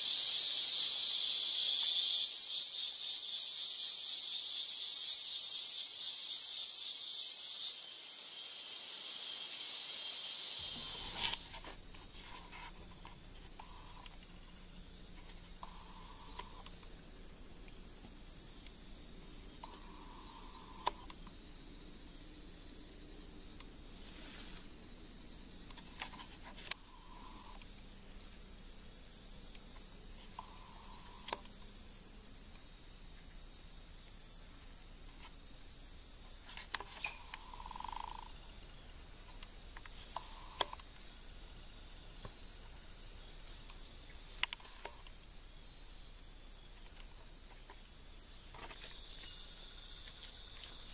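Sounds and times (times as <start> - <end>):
hiss: 0.0 - 12.8
night insects trilling: 0.0 - 50.9.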